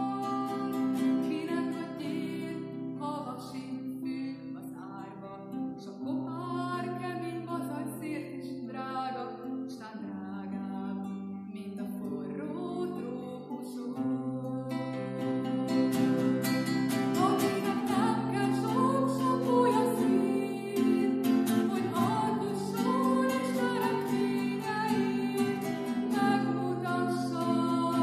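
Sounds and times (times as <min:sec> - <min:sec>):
strummed acoustic guitar: 0:00.0 - 0:28.0
woman singing: 0:00.0 - 0:28.0.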